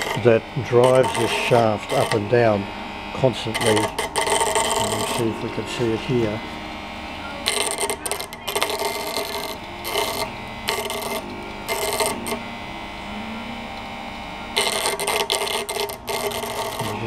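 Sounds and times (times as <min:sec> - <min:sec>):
electrode crackling and buzzing: 0:00.0 - 0:17.0
machine hum: 0:00.0 - 0:17.0.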